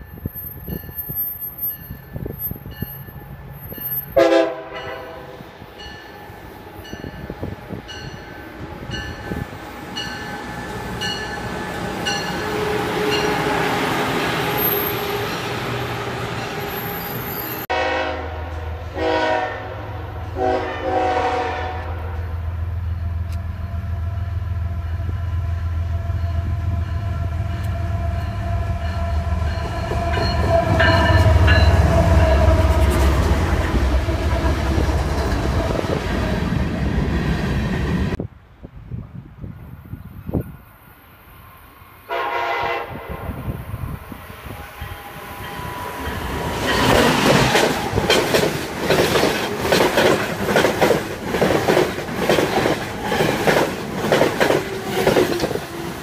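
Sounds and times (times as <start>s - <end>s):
train wheel and rail noise: 0.0s - 56.0s
train horn blasts: 4.1s - 5.6s, 12.0s - 13.8s, 17.7s - 22.4s, 42.0s - 43.6s
diesel locomotive rumble: 42.1s - 56.0s.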